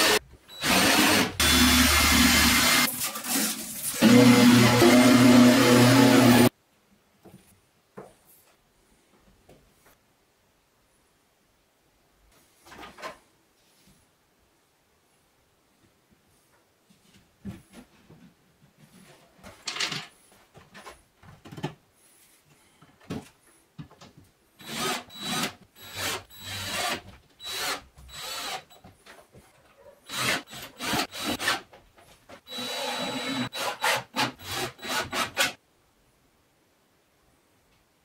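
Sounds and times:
cordless drill whining into chipboard: 0.0s - 2.9s, 24.6s - 28.9s, 30.1s - 31.5s, 32.5s - 35.5s.

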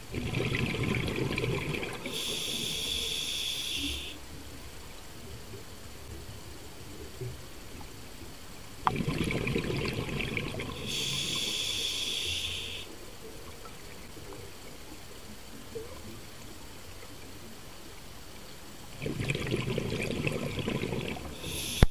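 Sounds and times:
exhaled bubbles rumbling: 0.0s - 3.2s, 3.9s - 11.8s, 18.8s - 21.9s
inhaled breath through regulator: 2.0s - 4.2s, 10.7s - 12.9s, 21.2s - 21.9s.

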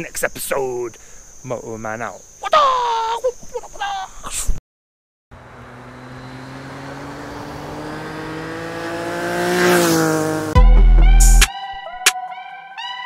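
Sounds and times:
motorcycle engine accelerating: 5.3s - 10.6s.

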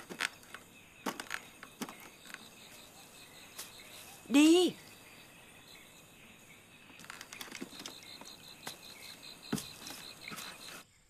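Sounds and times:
insects chirping: 0.0s - 11.0s
footsteps on wooden plank: 7.0s - 10.8s.

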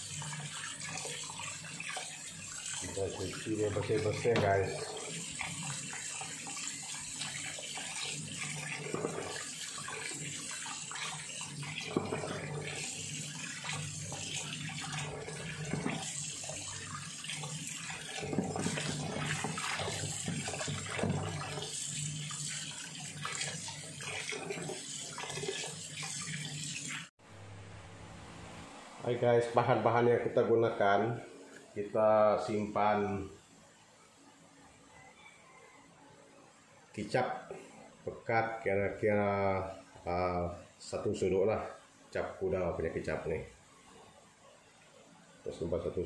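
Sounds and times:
tap water running into basin: 0.0s - 27.1s
water splashing and sloshing: 0.0s - 27.1s.

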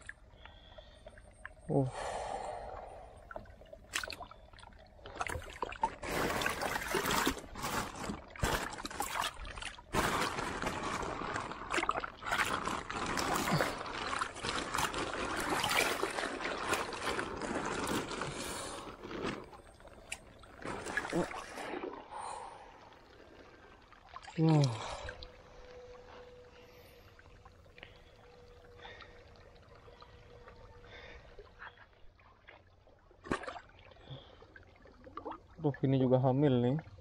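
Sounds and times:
pond water sloshing and splashing: 0.0s - 37.0s
plastic bag crinkling: 6.0s - 9.2s, 9.9s - 19.6s.

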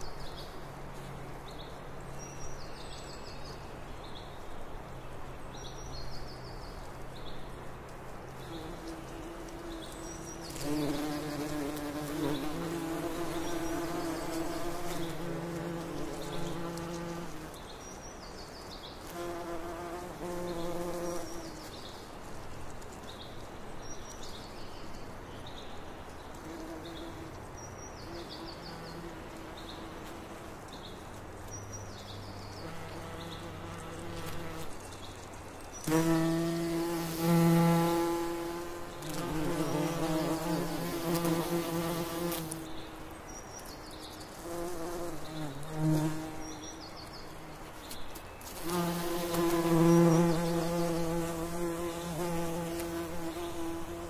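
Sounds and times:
bird chirping: 30.6s - 54.0s
bees buzzing: 35.8s - 43.1s, 44.4s - 54.0s.

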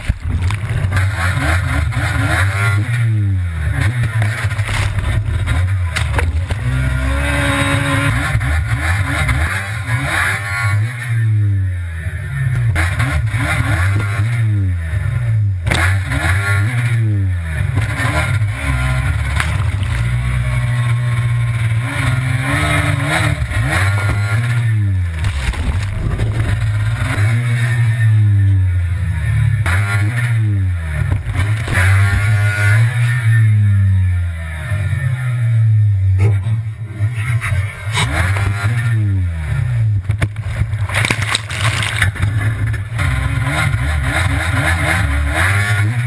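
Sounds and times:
jet ski engine revving: 0.6s - 10.4s, 15.0s - 40.0s.

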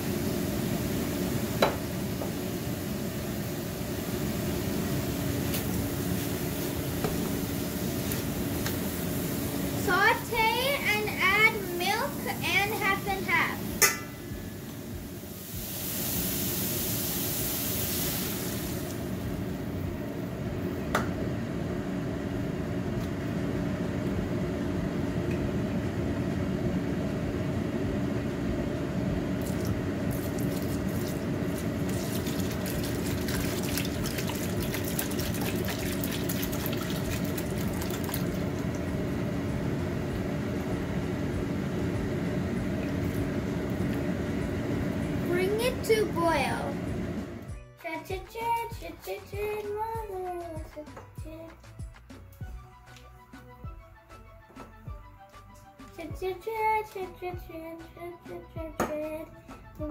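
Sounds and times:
food sizzling in a pot: 0.0s - 19.8s, 29.4s - 39.1s
steady low hum: 0.0s - 59.9s
liquid crackling in a hot pan: 15.2s - 19.1s, 29.4s - 39.0s.

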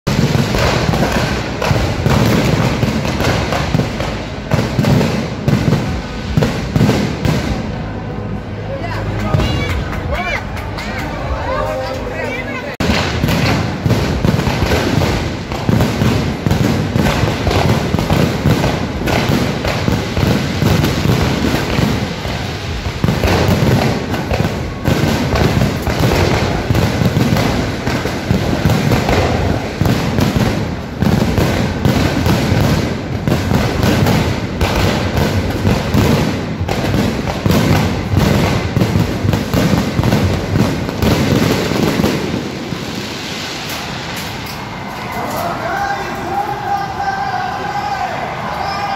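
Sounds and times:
fireworks bangs and pops: 0.0s - 7.8s, 12.8s - 46.2s.

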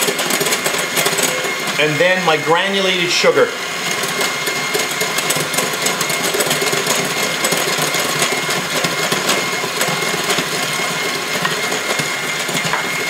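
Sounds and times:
high motor whine: 0.0s - 8.4s
electric hand mixer whipping: 0.0s - 13.0s.

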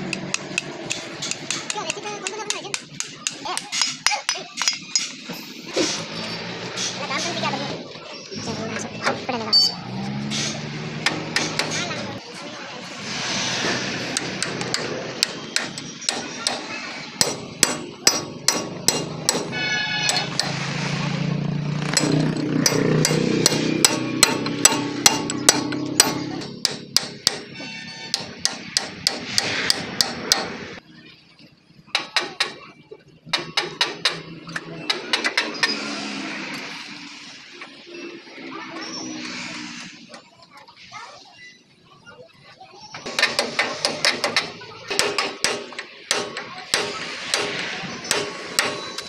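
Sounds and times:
hammer striking metal wheel hub: 14.2s - 20.6s, 21.9s - 30.6s.

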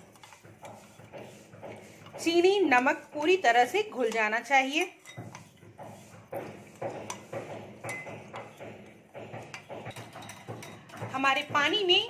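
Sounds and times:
spoon clinking in glass bowl: 4.1s - 5.5s, 7.8s - 8.6s, 9.9s - 11.1s.

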